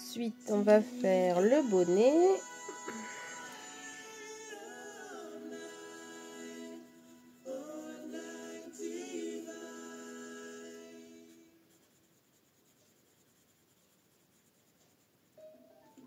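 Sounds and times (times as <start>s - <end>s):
woman humming: 0.6s - 3.5s
pencil scratching on paper: 11.2s - 15.4s.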